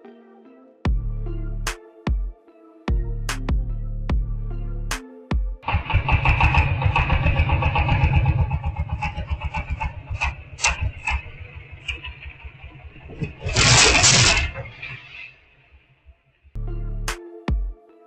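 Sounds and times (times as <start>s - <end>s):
small engine chugging: 5.6s - 14.1s.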